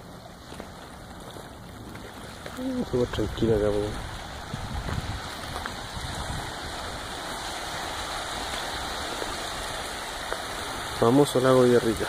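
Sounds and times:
lake waves lapping on stony shore: 0.0s - 12.0s
wind buffeting microphone: 0.0s - 12.0s.

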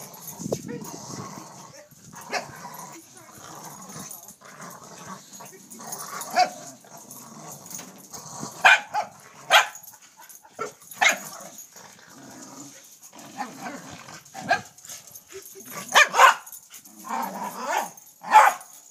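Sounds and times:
dogs barking: 6.3s - 6.6s, 8.6s - 11.6s, 14.4s - 14.8s, 15.8s - 16.6s, 17.5s - 18.8s.

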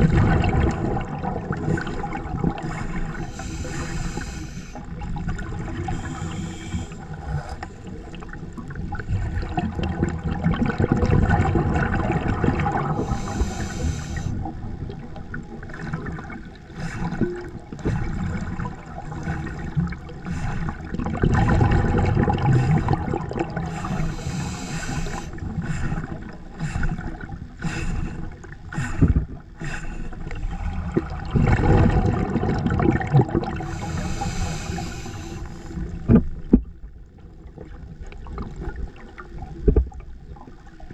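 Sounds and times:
underwater exhaled bubbles gurgling: 0.0s - 40.9s
regulator inhalation hiss: 2.6s - 4.8s, 5.9s - 7.6s, 13.0s - 14.4s, 23.7s - 30.5s, 33.6s - 35.9s.

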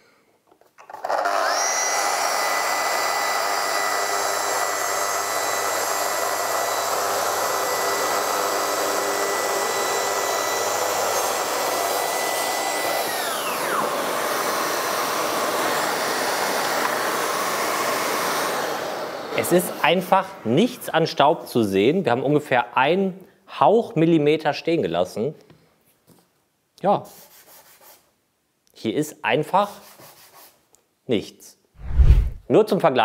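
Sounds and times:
workshop vacuum running: 1.2s - 20.4s.

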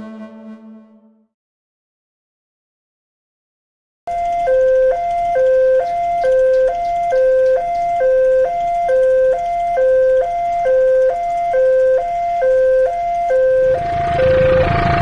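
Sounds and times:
two-tone level-crossing alarm: 4.1s - 15.0s
train rumble: 13.7s - 15.0s.

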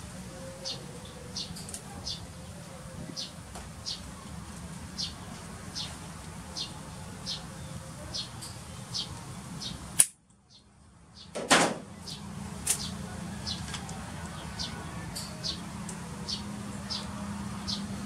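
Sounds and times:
sharp click: 10.0s - 10.2s.

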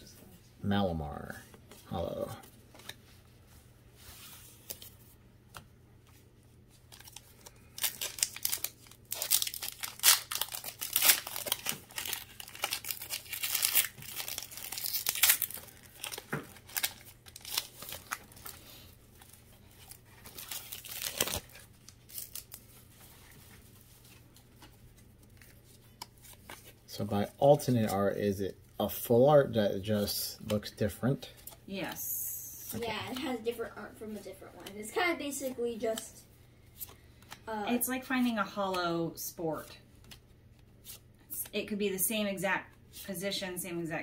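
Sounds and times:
foil wrapper tearing and crinkling: 6.9s - 18.6s, 19.2s - 22.7s.

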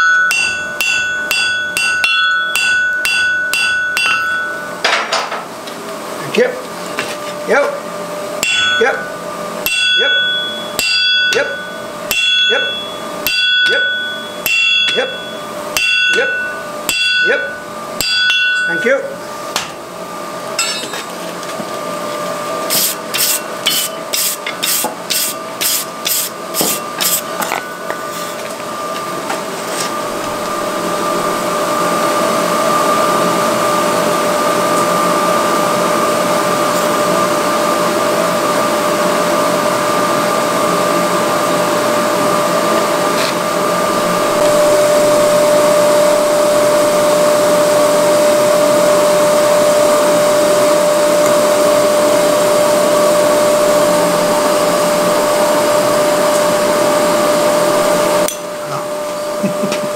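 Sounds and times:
electric blower whirring: 21.3s - 59.9s.

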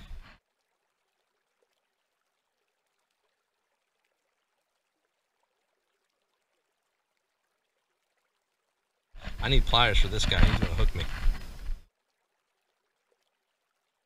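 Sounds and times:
faint hiss: 9.2s - 11.9s.

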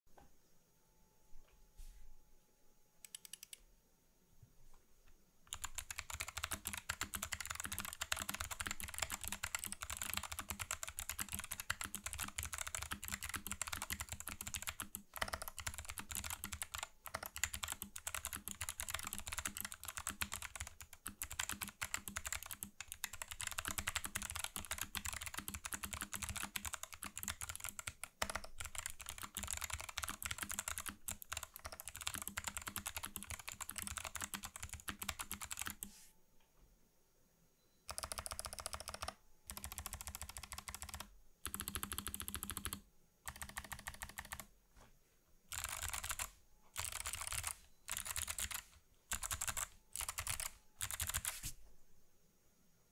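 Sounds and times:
fast typing on clicky keyboard: 5.5s - 35.9s, 37.9s - 44.5s, 45.5s - 51.5s.

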